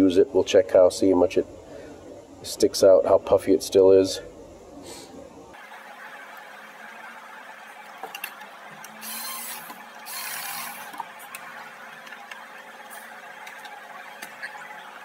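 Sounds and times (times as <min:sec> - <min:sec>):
power tool whirring: 0:08.7 - 0:11.5.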